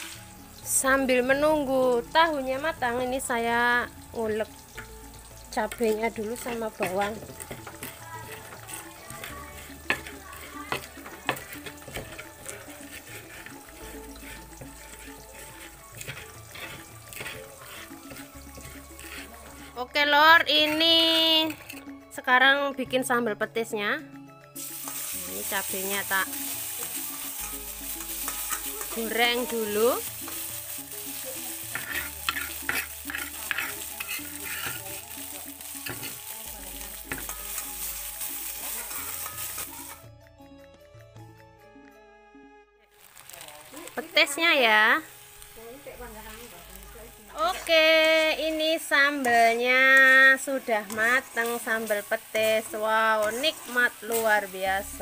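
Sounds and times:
tofu sizzling in oil: 0:00.0 - 0:21.8, 0:24.5 - 0:40.1, 0:42.9 - 0:55.0
metal spatula scraping a wok: 0:04.3 - 0:22.0, 0:24.6 - 0:40.0, 0:46.0 - 0:55.0
stone pestle grinding in clay mortar: 0:06.4 - 0:19.9, 0:31.7 - 0:35.0.

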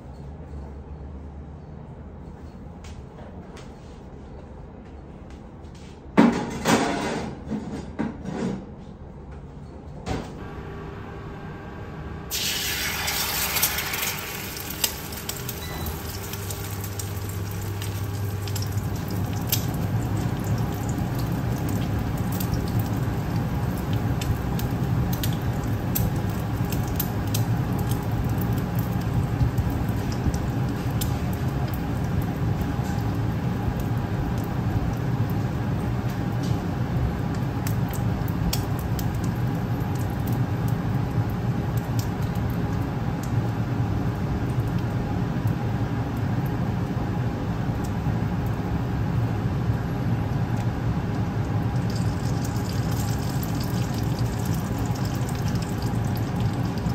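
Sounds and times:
egg sizzling in oil: 0:12.3 - 0:43.2, 0:51.1 - 0:56.9
oil popping and crackling: 0:12.3 - 0:46.9, 0:50.3 - 0:56.9.

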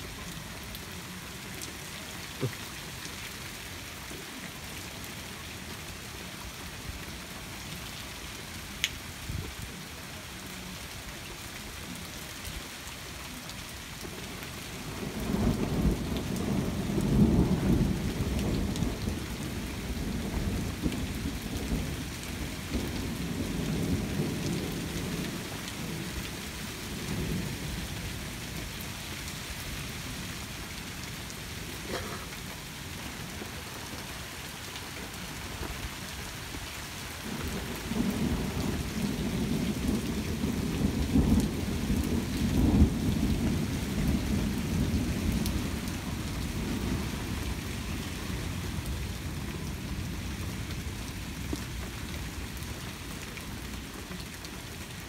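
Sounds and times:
steady rain: 0:00.0 - 0:55.0.

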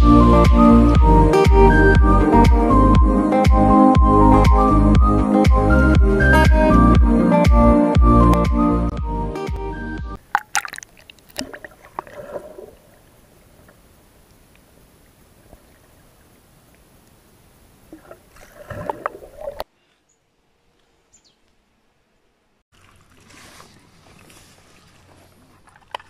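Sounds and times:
water splashing and sloshing: 0:10.2 - 0:17.2, 0:17.8 - 0:19.7, 0:22.7 - 0:26.0.

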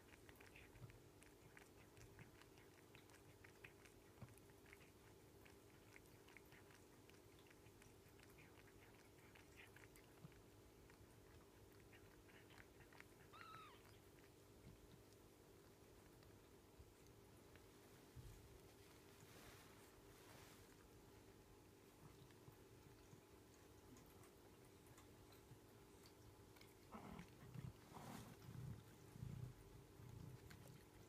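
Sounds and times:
cat licking wet clicking: 0:00.0 - 0:17.7
kitten mewing: 0:13.2 - 0:13.9.

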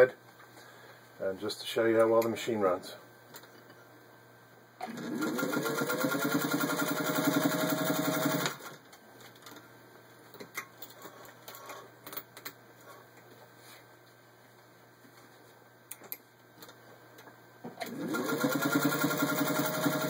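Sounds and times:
sewing machine motor running: 0:04.8 - 0:08.6, 0:17.8 - 0:20.0.

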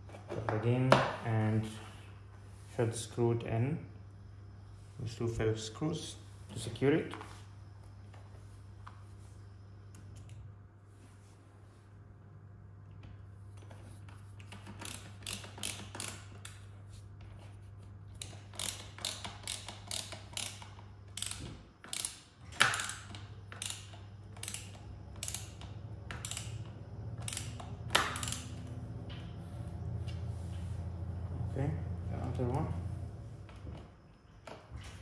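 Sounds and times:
screwdriver clicking: 0:14.4 - 0:16.6, 0:18.2 - 0:28.7.

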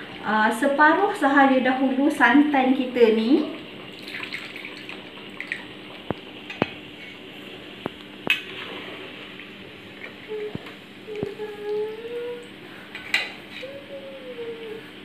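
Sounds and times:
liquid pouring: 0:03.9 - 0:06.2.

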